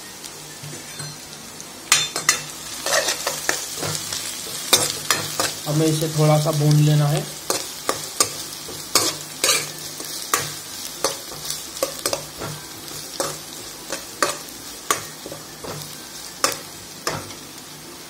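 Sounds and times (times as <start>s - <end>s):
vegetables sizzling in hot oil: 0.0s - 18.0s
spatula scraping a pan: 2.3s - 5.7s, 7.5s - 17.3s.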